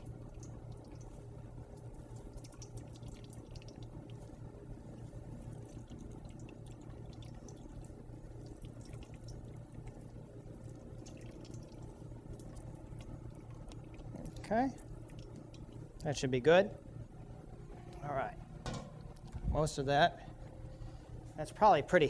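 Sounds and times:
liquid dripping and trickling: 0.0s - 16.2s
steady low hum: 0.0s - 22.0s.

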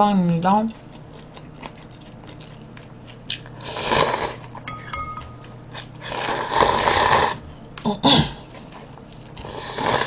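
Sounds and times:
person slurping noodles: 3.6s - 4.4s, 6.0s - 7.4s, 9.4s - 10.0s.

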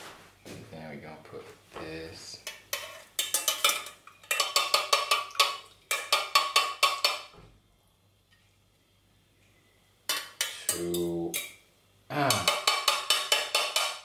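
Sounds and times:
metal tongs clinking on dishware: 2.5s - 5.0s, 10.1s - 11.6s.

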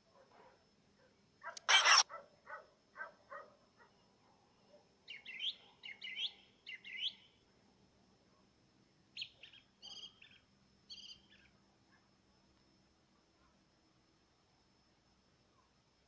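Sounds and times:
nightingale singing: 5.1s - 7.3s, 9.2s - 11.5s.

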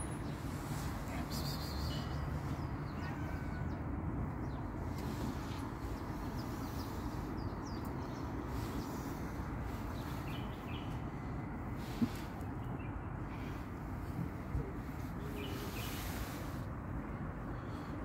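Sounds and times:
distant traffic rumble: 0.0s - 18.0s.

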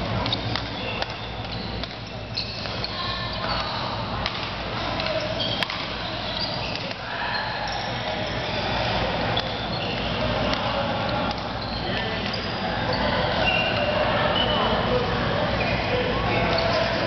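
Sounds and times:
hall background noise: 0.0s - 17.0s
racket hitting shuttlecock: 0.2s - 2.8s, 4.2s - 6.0s, 6.6s - 7.0s
shoe squeaks on court: 0.2s - 4.0s, 5.0s - 10.2s, 11.0s - 14.9s.

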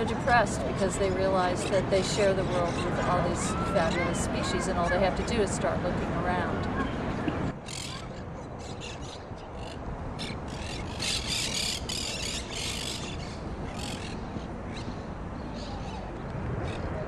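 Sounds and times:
parakeets squawking: 7.7s - 14.9s.

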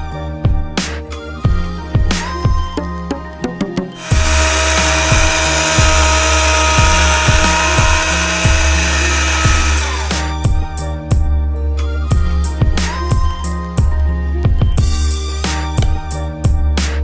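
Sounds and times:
blender motor whirring: 4.0s - 10.4s.

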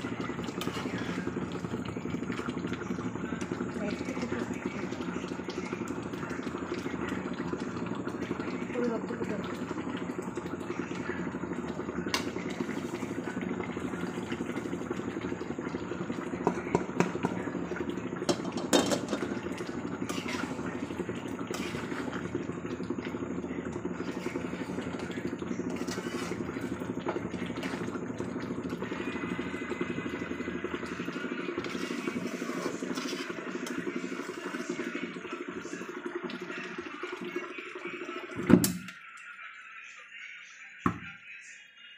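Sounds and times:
low rushing cooking noise: 0.0s - 38.2s
metal spatula scraping a pan: 21.5s - 22.0s, 25.8s - 26.4s, 31.7s - 33.3s.

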